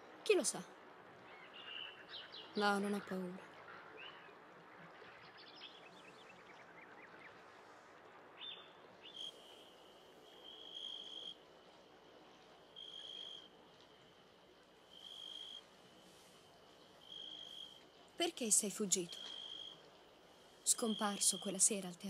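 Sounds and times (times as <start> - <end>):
faint night ambience: 0.0 - 22.0
cricket trilling: 9.1 - 11.4, 12.8 - 13.6, 14.9 - 15.7, 17.0 - 17.8, 19.0 - 19.8.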